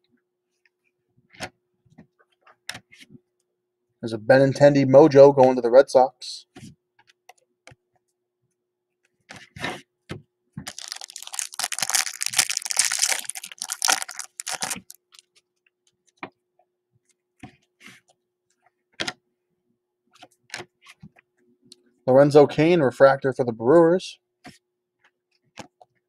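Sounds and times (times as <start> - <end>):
foil wrapper crinkling: 10.7 - 15.3.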